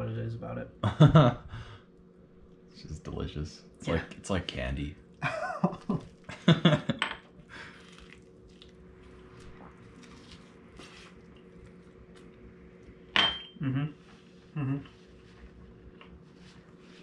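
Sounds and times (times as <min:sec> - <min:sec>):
man talking: 0:00.0 - 0:00.8, 0:02.8 - 0:05.0
faint steady hum: 0:00.0 - 0:17.0
chewing: 0:07.6 - 0:12.9
dishware and utensils clinking: 0:13.2 - 0:13.6.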